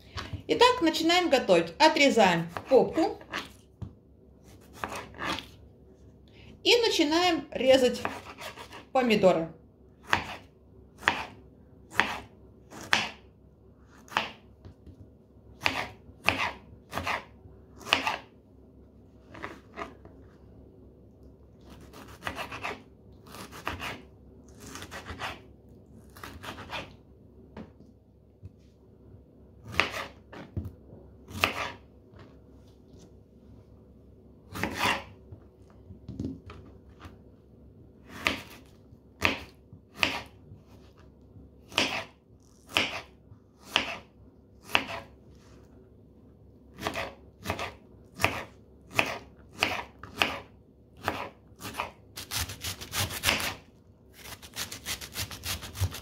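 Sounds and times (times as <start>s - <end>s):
knife chopping on cutting board: 4.6s - 5.5s, 10.1s - 13.2s, 14.1s - 15.0s, 15.6s - 18.3s, 21.7s - 24.0s, 29.6s - 30.7s, 31.3s - 31.8s, 34.5s - 35.1s, 38.1s - 40.8s, 41.7s - 42.1s, 42.7s - 45.1s, 46.8s - 53.6s, 54.2s - 56.0s.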